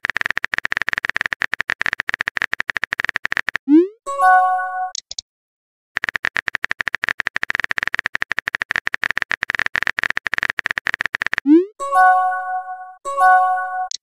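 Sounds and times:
phone keyboard typing clicks: 0:00.0 - 0:03.6, 0:04.9 - 0:05.2, 0:06.0 - 0:11.5.

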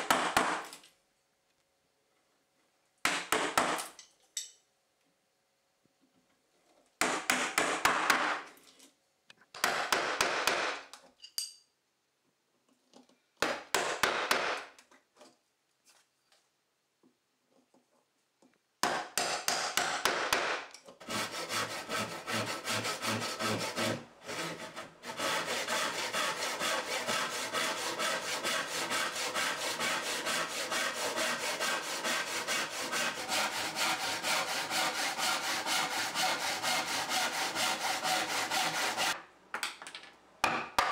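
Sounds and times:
backsaw cutting wood: 0:21.0 - 0:39.2.

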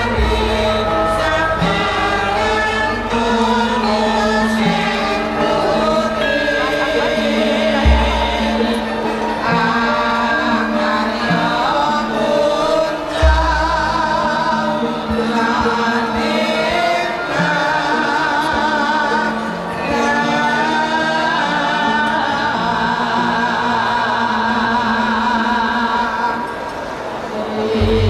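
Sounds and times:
ringing bronze tones: 0:00.0 - 0:21.5
gamelan music: 0:00.0 - 0:24.2, 0:27.1 - 0:28.0
wavering singing voices: 0:00.0 - 0:28.0.

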